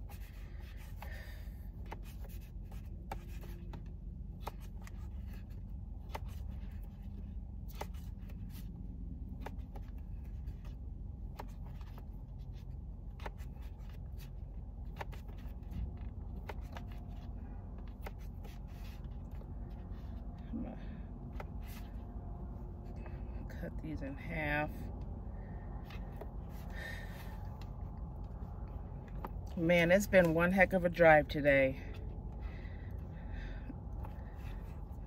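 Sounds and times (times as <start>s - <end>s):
low hum: 0.0s - 35.0s.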